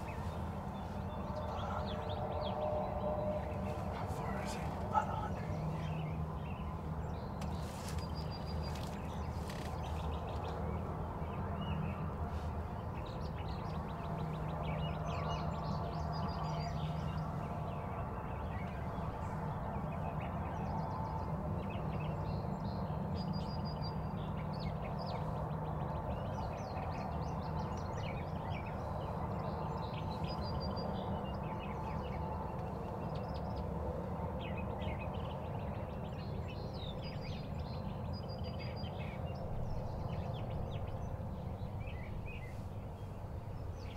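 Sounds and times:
songbirds chirping: 0:00.0 - 0:43.9.

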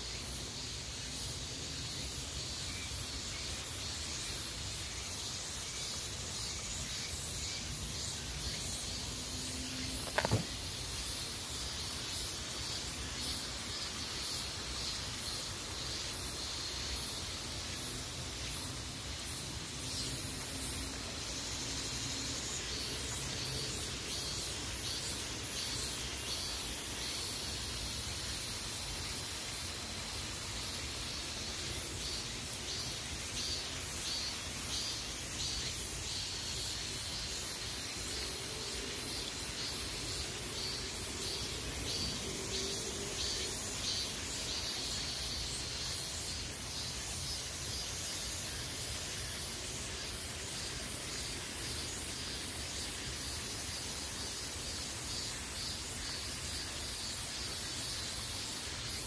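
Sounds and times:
woodland high hiss: 0:00.0 - 0:59.0
sharp click: 0:10.0 - 0:10.6.

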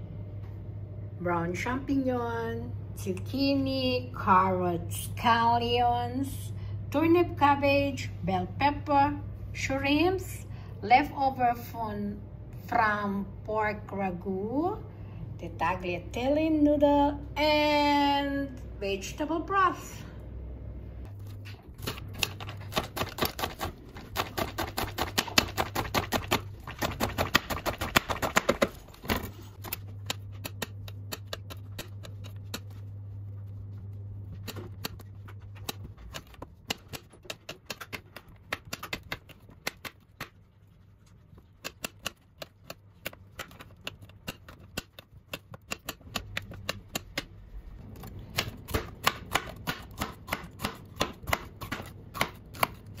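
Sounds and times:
low hum: 0:00.0 - 0:23.0, 0:28.8 - 0:37.2.

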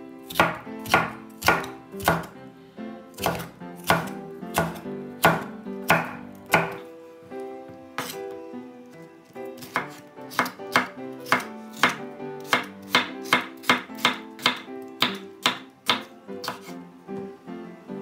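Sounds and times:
knife slicing pepper on board: 0:00.3 - 0:02.4, 0:03.1 - 0:06.9, 0:08.0 - 0:08.3, 0:09.5 - 0:16.8.

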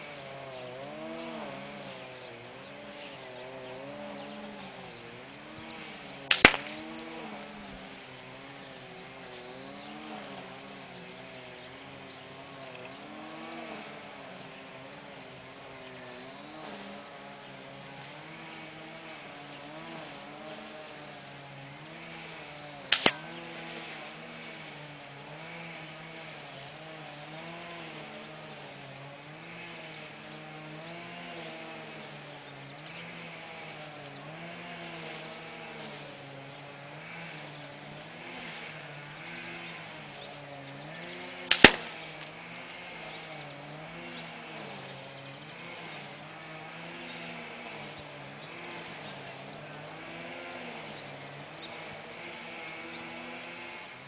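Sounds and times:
air rifle shots: 0:06.3 - 0:07.0, 0:23.0 - 0:23.3, 0:41.5 - 0:42.3.

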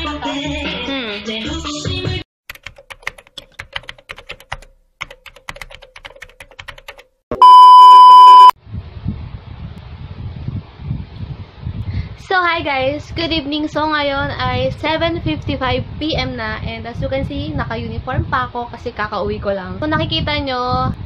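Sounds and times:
high steady beep: 0:07.3 - 0:08.6.

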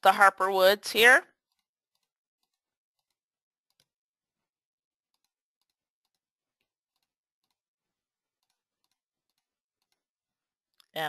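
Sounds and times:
computer mouse clicks: 0:01.5 - 0:03.9, 0:05.1 - 0:06.2, 0:06.9 - 0:07.6.

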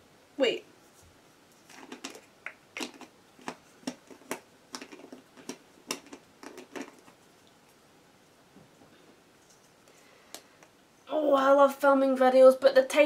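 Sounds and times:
small objects clicking and tapping: 0:01.7 - 0:07.2.

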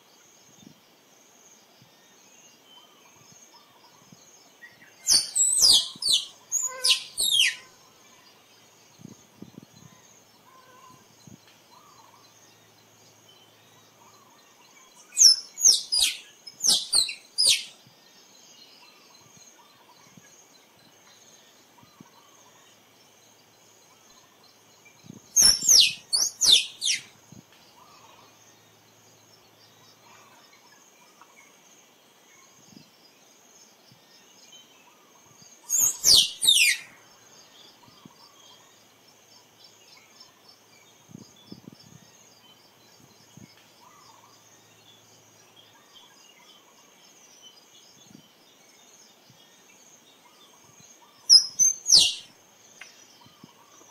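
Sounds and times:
faint insect hum: 0:00.0 - 0:53.9
squirrel chirping: 0:05.1 - 0:07.7, 0:15.1 - 0:17.7, 0:25.4 - 0:27.1, 0:35.7 - 0:36.9, 0:51.3 - 0:52.3.

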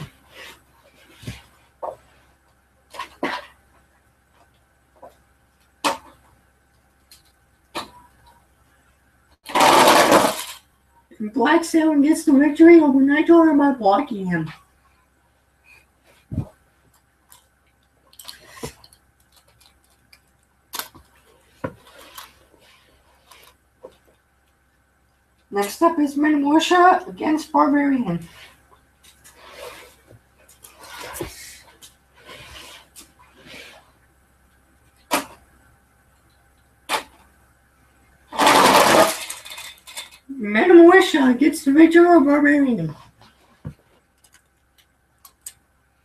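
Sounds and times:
toy trucks clattering down ramp: 0:09.4 - 0:10.7, 0:38.3 - 0:40.3.

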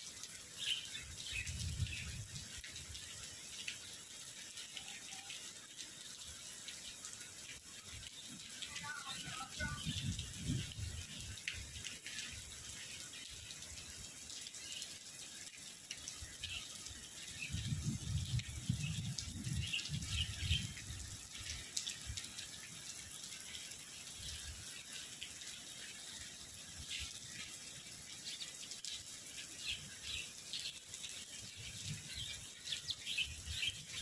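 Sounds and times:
heavy rain hissing: 0:00.0 - 0:34.0
small birds chirping: 0:00.6 - 0:02.2, 0:28.2 - 0:30.9, 0:31.5 - 0:34.0.

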